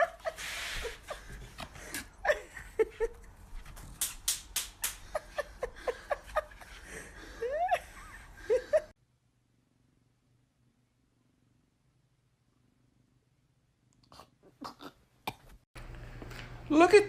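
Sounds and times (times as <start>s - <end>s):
person laughing: 0.0s - 3.4s, 4.8s - 8.9s.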